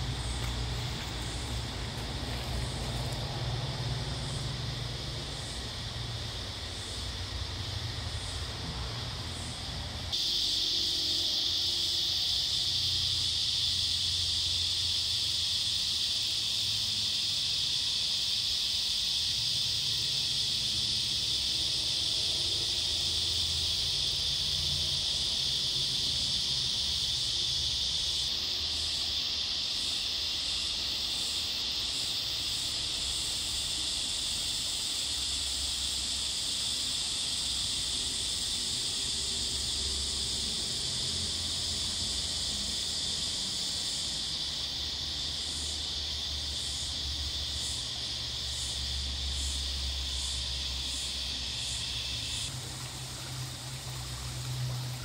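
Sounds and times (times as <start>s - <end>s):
higher pulsing insect call: 0.0s - 55.0s
insects chorus: 0.0s - 55.0s.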